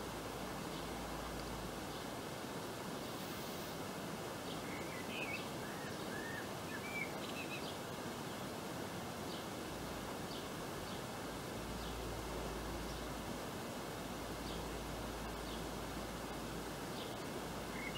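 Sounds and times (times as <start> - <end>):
outdoor background hiss: 0.0 - 17.9
bird chirps and calls: 4.5 - 7.9, 16.9 - 17.9.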